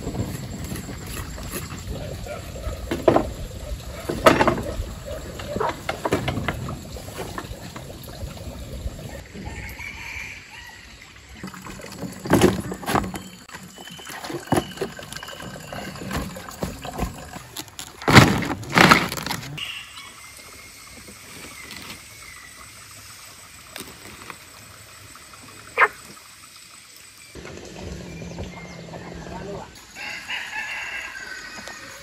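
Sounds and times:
water sloshing and splashing: 0:00.0 - 0:09.4, 0:11.0 - 0:19.6
outdoor background: 0:00.0 - 0:32.0.

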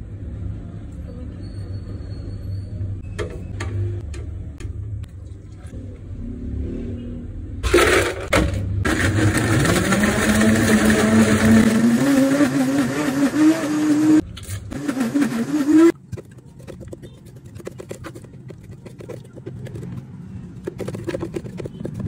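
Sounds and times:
blender motor running: 0:08.9 - 0:15.9.

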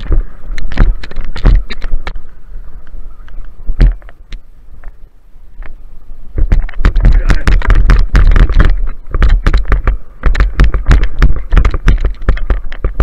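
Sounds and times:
knocks and rustles: 0:00.0 - 0:02.2, 0:03.8 - 0:05.0, 0:06.4 - 0:13.0
wind buffeting microphone: 0:00.0 - 0:13.0.

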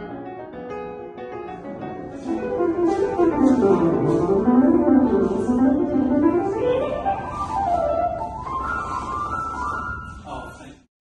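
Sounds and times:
piano notes: 0:00.0 - 0:10.8.

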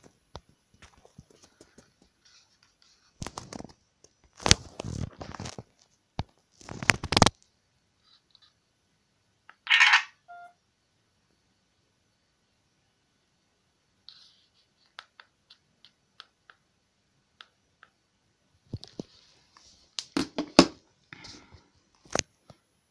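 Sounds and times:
camera shutter sound: 0:09.6 - 0:10.2
two-tone phone beep: 0:09.7 - 0:10.6.

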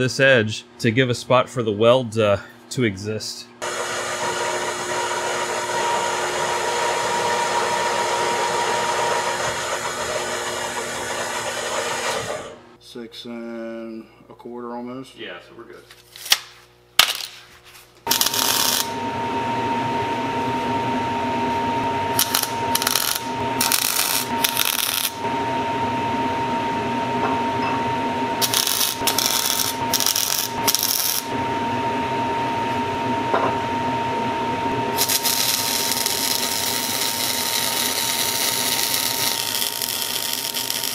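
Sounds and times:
welder machine hum: 0:03.6 - 0:12.8, 0:18.0 - 0:40.9
welding arc crackling: 0:18.0 - 0:19.0, 0:22.1 - 0:25.2, 0:28.4 - 0:31.3, 0:34.9 - 0:40.9
held whine: 0:18.0 - 0:40.9.

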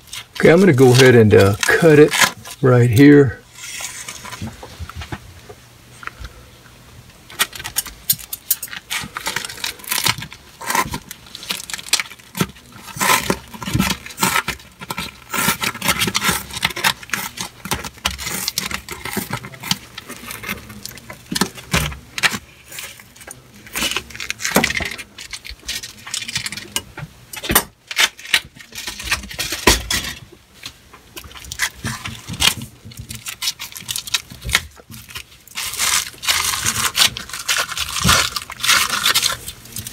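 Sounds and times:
wrap rustling and scraping: 0:00.0 - 0:05.2
scissors snipping and crunching: 0:07.4 - 0:30.1, 0:31.2 - 0:39.9.

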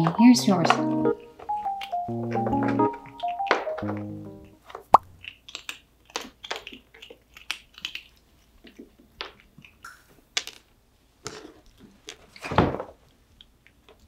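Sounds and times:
cat crunching dry treats: 0:05.2 - 0:10.8.

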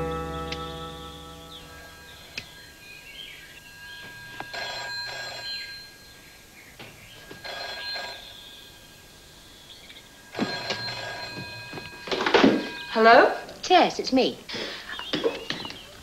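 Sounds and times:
background music: 0:00.0 - 0:02.8
telephone bell ringing: 0:03.5 - 0:06.2, 0:07.2 - 0:09.2, 0:10.1 - 0:13.5.

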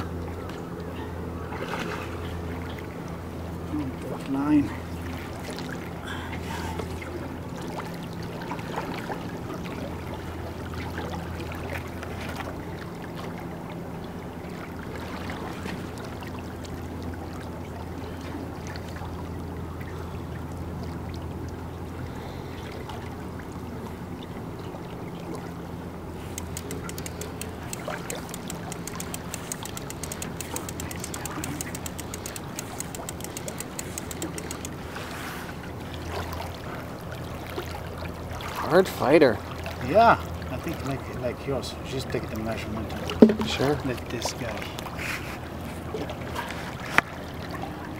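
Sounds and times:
water lapping around hull: 0:00.0 - 0:47.9
boat motor idling: 0:25.9 - 0:35.1, 0:43.1 - 0:44.0
fast high ticking: 0:26.3 - 0:34.8.

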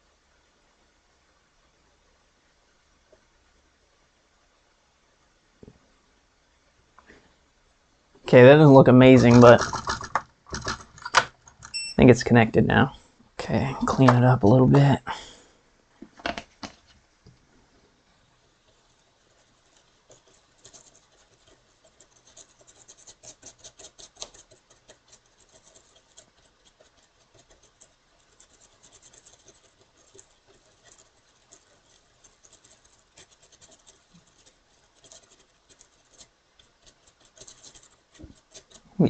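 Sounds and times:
scrubbing on a circuit board: 0:08.9 - 0:11.0, 0:18.5 - 0:39.0.

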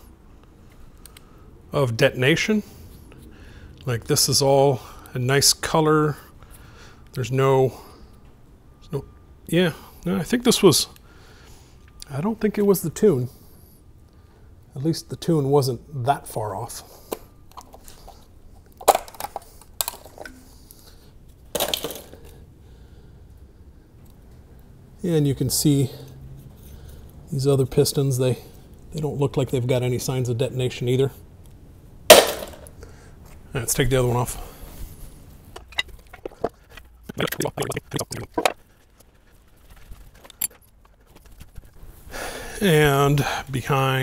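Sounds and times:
engine parts and tools clattering: 0:17.5 - 0:22.4, 0:35.5 - 0:41.8.

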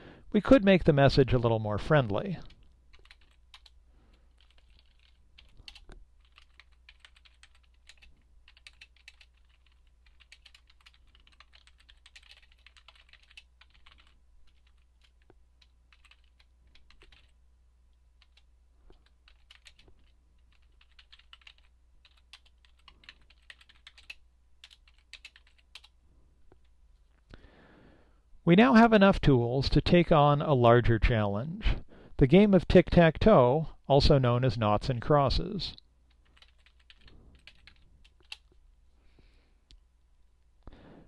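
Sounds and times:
typing on a keyboard: 0:02.4 - 0:17.4, 0:18.2 - 0:25.9, 0:36.1 - 0:38.5.

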